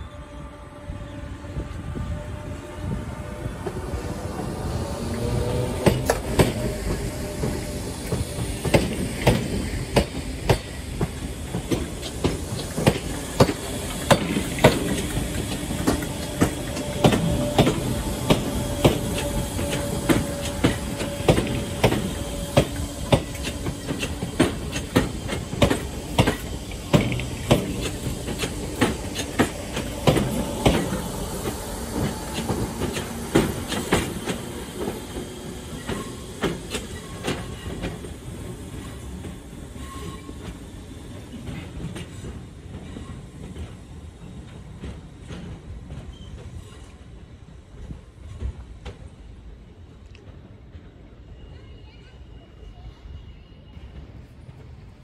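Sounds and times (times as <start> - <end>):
train rumble: 0.0 - 55.0
train wheels clacking over rail joints: 4.8 - 40.6.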